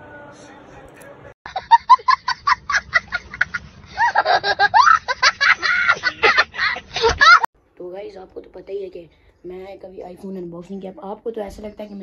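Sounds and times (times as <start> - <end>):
child laughing: 1.5 - 7.5.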